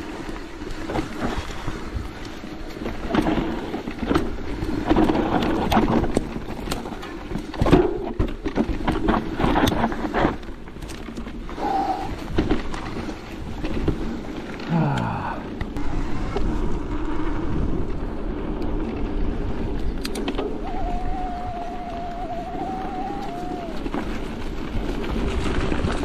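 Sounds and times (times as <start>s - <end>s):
bike clattering and rattling: 0.0s - 14.7s, 15.4s - 26.0s
bike rolling over rough trail: 0.0s - 26.0s
wind buffeting microphone: 15.3s - 26.0s.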